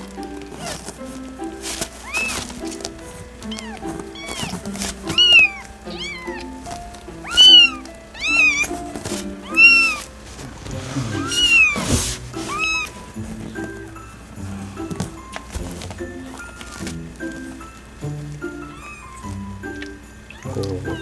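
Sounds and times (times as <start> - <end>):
newborn kitten mewing: 2.0 - 2.4, 3.5 - 6.6, 7.2 - 8.8, 9.4 - 10.0, 11.1 - 11.8, 12.5 - 12.9, 18.6 - 19.4, 20.3 - 21.0.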